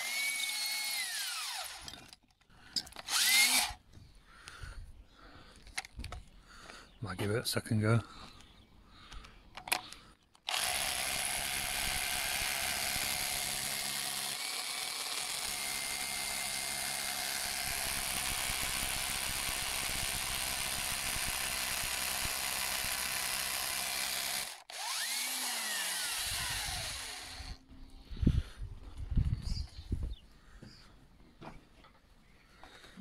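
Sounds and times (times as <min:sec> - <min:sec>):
drill motor whine: 0:00.0 - 0:01.9, 0:03.1 - 0:03.8, 0:10.5 - 0:27.6
rotary hammer drilling into brick: 0:00.0 - 0:02.1, 0:02.8 - 0:03.8, 0:10.4 - 0:27.6.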